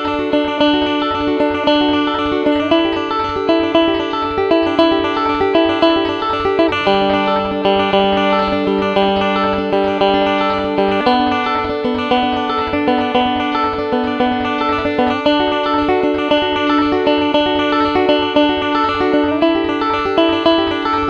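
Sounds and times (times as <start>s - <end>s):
electric guitar held notes: 0.0s - 21.0s
fingerpicked banjo: 0.0s - 21.0s.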